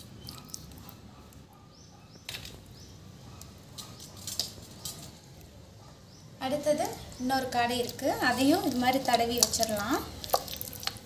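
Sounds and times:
hand squelching marinade: 7.5 - 11.0.

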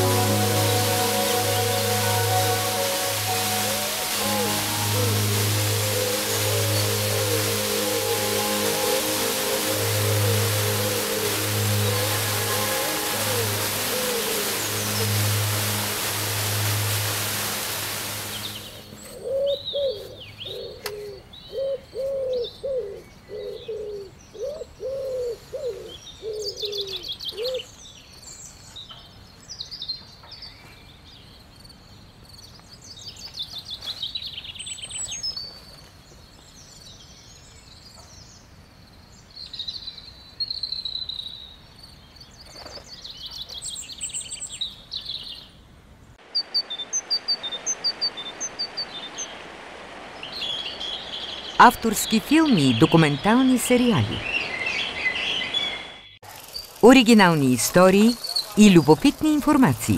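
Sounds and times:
low repeated bird call: 0.0 - 27.6
songbirds chirping and trilling: 46.4 - 59.7.

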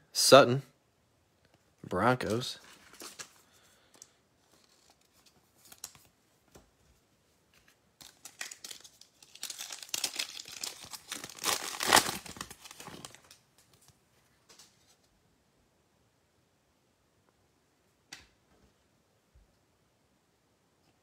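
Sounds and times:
foil wrapper tearing and crinkling: 8.0 - 13.4.

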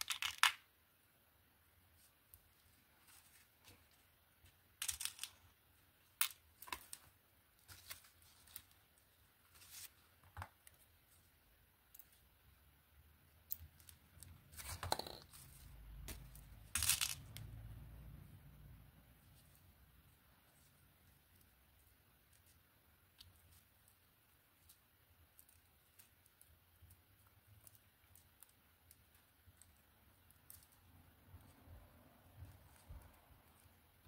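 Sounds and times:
beads clicking and clinking: 4.6 - 7.1, 13.3 - 17.9.

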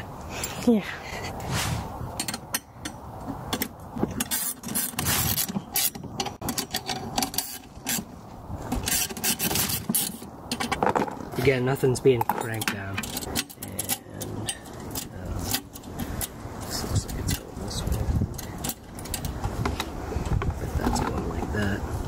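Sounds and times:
metal bolts and wrench rattling: 2.2 - 8.1, 12.2 - 16.4, 17.2 - 19.4.

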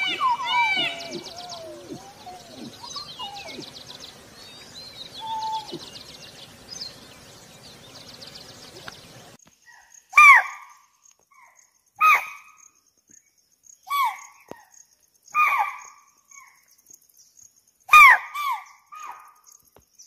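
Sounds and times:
deer call: 0.0 - 3.7
bird trills: 0.0 - 10.7
soft gliding bird calls: 0.0 - 12.6
background hiss: 0.0 - 17.9.

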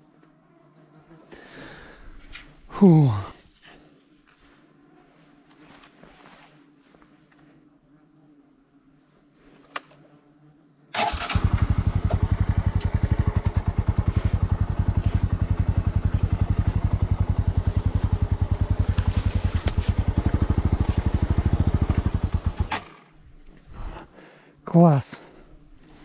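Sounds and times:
motorcycle engine idling: 11.0 - 23.2.

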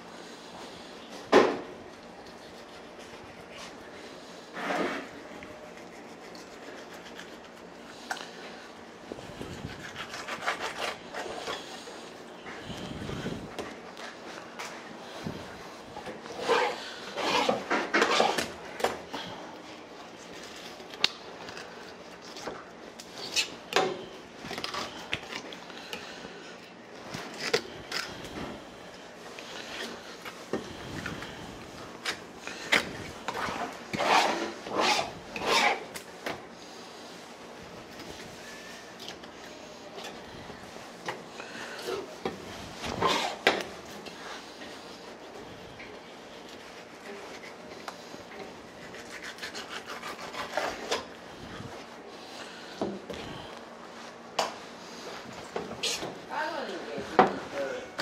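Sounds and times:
knife scraping on cutting board: 4.5 - 7.6, 9.5 - 11.7, 16.3 - 18.6, 32.5 - 36.0, 42.8 - 43.6, 48.8 - 51.1.

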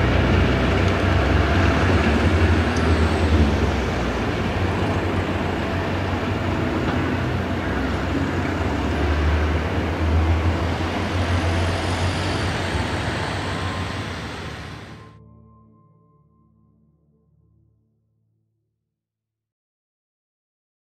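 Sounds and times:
low engine rumble: 0.0 - 15.2
vehicles passing: 0.0 - 15.2.

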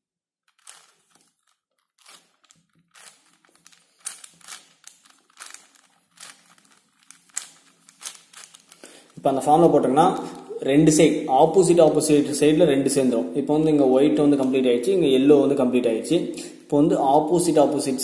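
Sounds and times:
puzzle cube clacking and scraping: 0.4 - 9.4.

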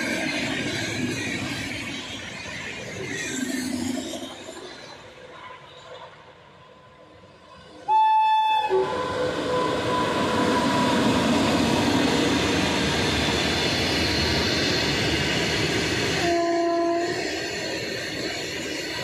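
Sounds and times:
train wheels rumbling on rails: 0.0 - 8.0, 8.6 - 19.0
train horn: 7.9 - 11.4, 16.1 - 17.3.

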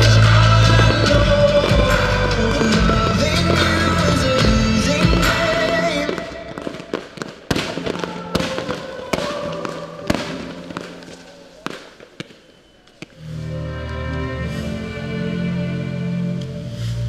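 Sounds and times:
fireworks bangs: 0.0 - 13.2
fireworks crackling: 0.0 - 13.5.

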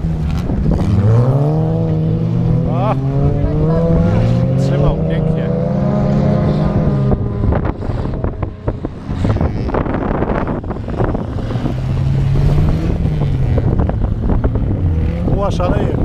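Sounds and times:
race car engines: 0.0 - 16.0
wind buffeting microphone: 0.0 - 16.0.

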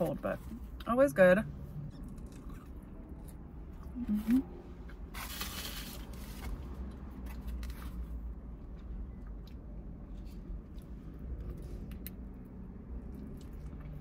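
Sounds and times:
low steady hum: 0.0 - 14.0
soft chewing: 1.9 - 5.0, 6.9 - 14.0.

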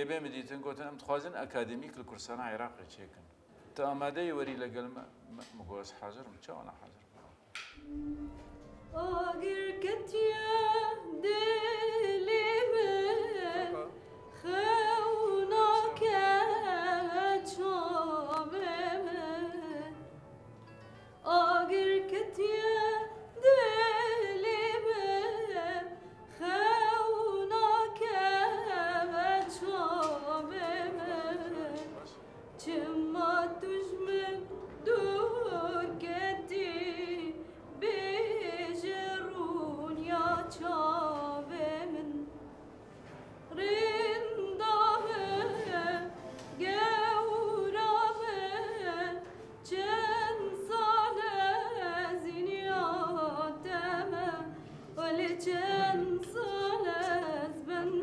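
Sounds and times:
woman singing: 8.9 - 20.0, 21.2 - 32.0, 32.6 - 42.3, 43.5 - 58.0.

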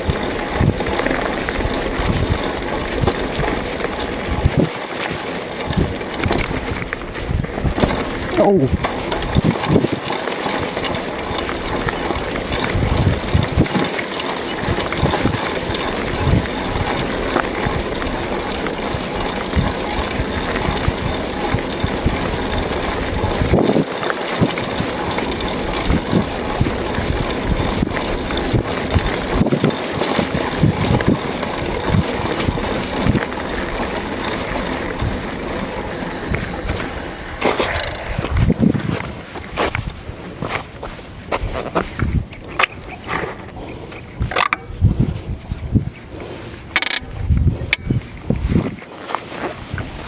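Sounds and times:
bike knocks and rattles: 0.0 - 50.0
tyre and wind rush: 0.0 - 50.0.

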